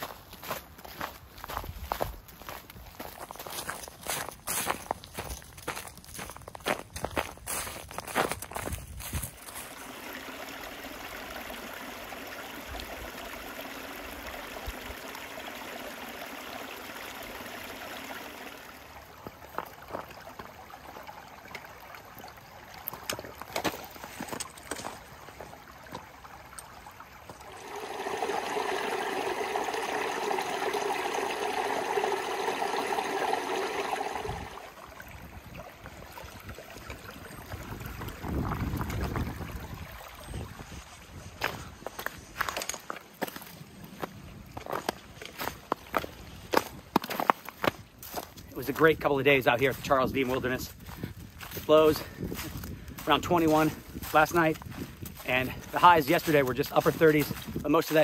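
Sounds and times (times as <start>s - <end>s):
creek babbling over stones: 2.4s - 41.4s.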